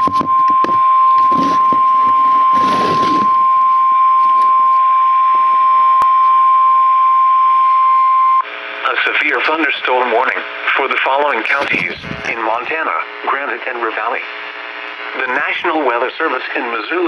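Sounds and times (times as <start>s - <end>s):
radio warning alarm tone: 0.0s - 8.4s, 11.4s - 13.0s.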